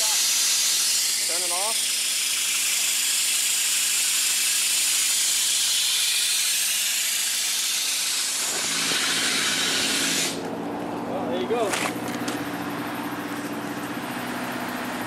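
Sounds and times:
loud steady hiss: 0:00.0 - 0:10.4.

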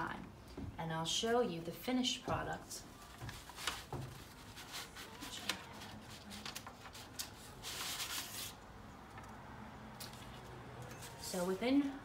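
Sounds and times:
scratchy paper rustling: 0:03.0 - 0:08.6.

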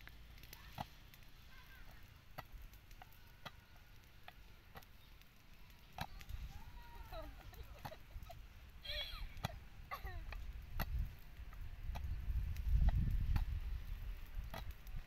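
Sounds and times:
wind rumble on microphone: 0:06.0 - 0:15.0.

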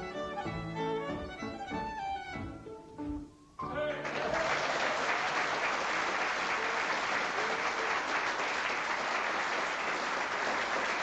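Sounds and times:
audience applause: 0:04.0 - 0:11.0.

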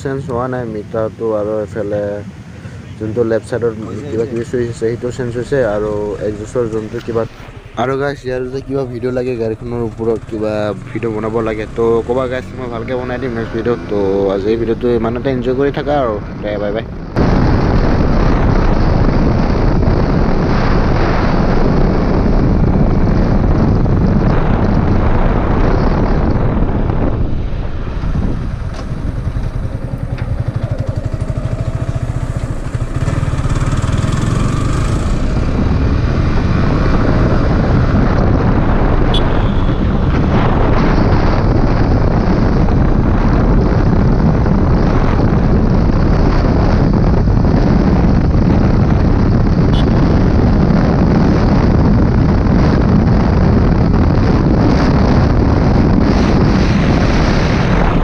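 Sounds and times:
wind rushing over microphone: 0:00.0 - 0:58.0
motorcycle engine at speed: 0:17.0 - 0:58.0.

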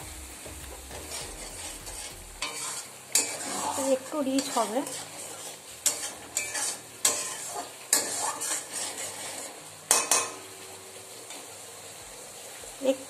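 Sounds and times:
gravy bubbling and sizzling: 0:00.0 - 0:13.0
metal spatula scraping pan: 0:00.3 - 0:10.4.

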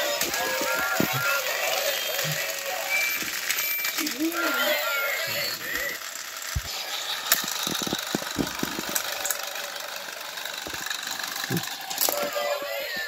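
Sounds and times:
toy train engines whirring: 0:00.0 - 0:13.0.

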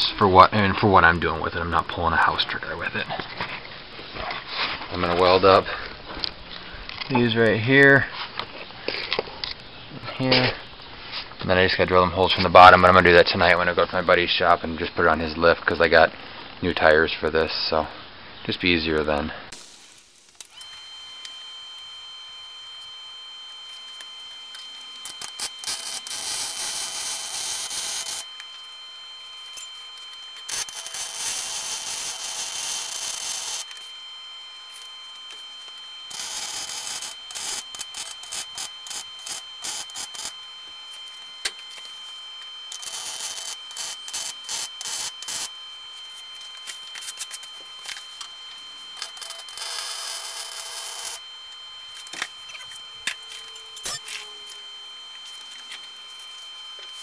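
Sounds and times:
welder arc crackling: 0:19.0 - 0:57.0.

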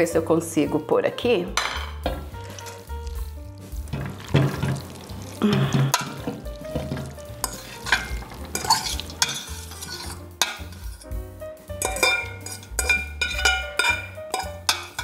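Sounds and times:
background music with bass line: 0:00.2 - 0:15.0
utensil scraping metal pot: 0:01.6 - 0:11.2, 0:11.8 - 0:15.0
wet pasta sliding: 0:02.2 - 0:11.0.

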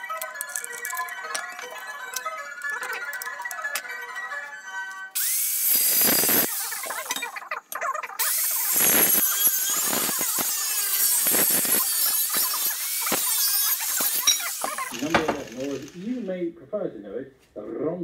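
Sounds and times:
angle grinder cutting steel: 0:05.2 - 0:07.4, 0:08.2 - 0:16.3.

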